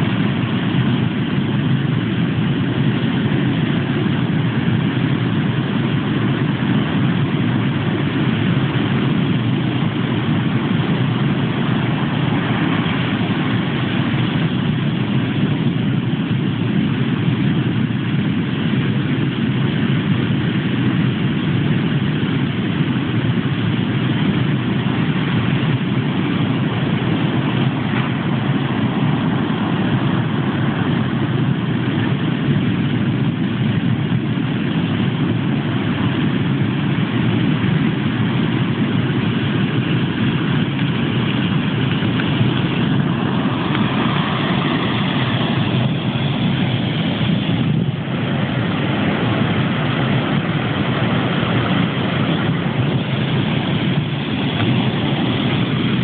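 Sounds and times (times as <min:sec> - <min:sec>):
surf breaking on beach: 0:41.4 - 0:56.0.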